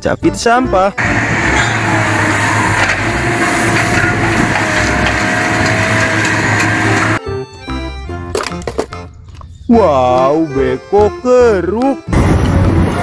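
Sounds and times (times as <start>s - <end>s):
debris crackling and crunching: 1.0s - 7.2s
engine hum: 1.0s - 7.8s.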